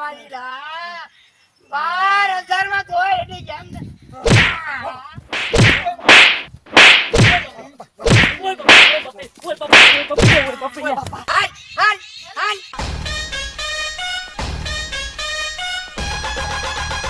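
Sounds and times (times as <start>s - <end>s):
short swish: 4.3s - 4.6s, 5.3s - 7.5s, 8.1s - 9.1s, 9.7s - 10.5s
whip-crack sound effects: 4.3s - 4.6s, 5.3s - 7.5s, 8.1s - 9.1s, 9.7s - 10.5s.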